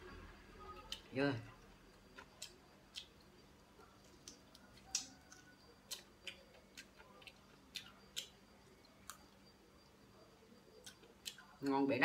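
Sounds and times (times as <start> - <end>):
person chewing: 2.0 - 9.4, 10.8 - 11.6.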